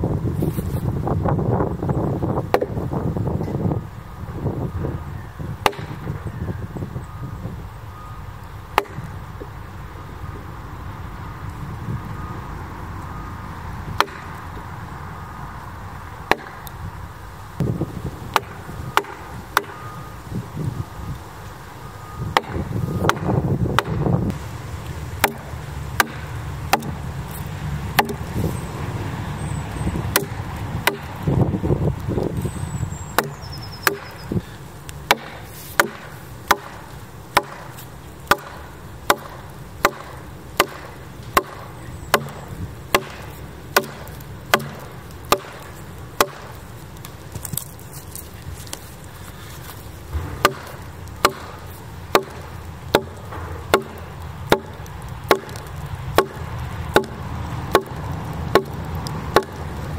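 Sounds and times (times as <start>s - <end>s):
axe chopping wood: 2.5s - 2.8s, 5.6s - 6.2s, 8.7s - 9.1s, 13.9s - 14.4s, 16.3s - 16.7s, 17.6s - 19.8s, 22.3s - 24.2s, 25.2s - 28.3s, 30.1s - 31.2s, 33.2s - 34.2s, 35.0s - 47.8s, 50.1s - 59.6s.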